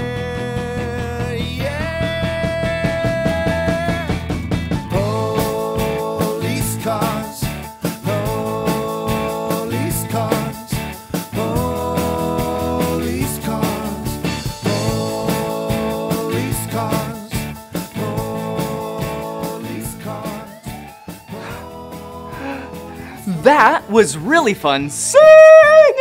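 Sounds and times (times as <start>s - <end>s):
upbeat rock children's song: 0.0s - 25.9s
steady drum beat: 1.5s - 18.8s, 21.4s - 24.8s.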